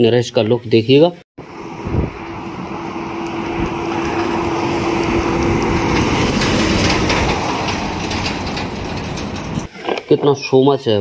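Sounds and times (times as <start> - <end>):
truck driving past: 1.4 - 9.7
clicking and rattling: 3.9 - 9.7.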